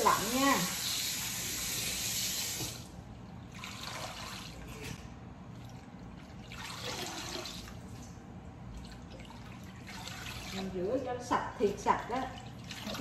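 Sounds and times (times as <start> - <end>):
tap running water: 0.0 - 3.0
water splashing as hands rinse: 0.0 - 5.0, 5.6 - 13.0.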